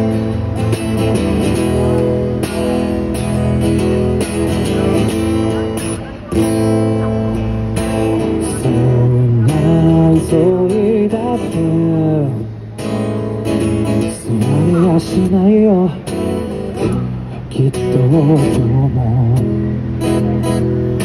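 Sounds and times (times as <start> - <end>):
strummed acoustic guitar: 0.0 - 21.0
man singing a slow ballad: 8.2 - 12.5, 14.0 - 16.2, 17.4 - 19.5.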